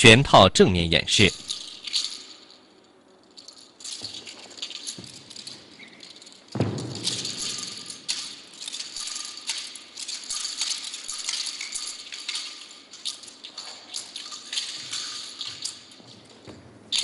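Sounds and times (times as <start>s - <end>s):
heavy thump: 6.6s - 7.4s.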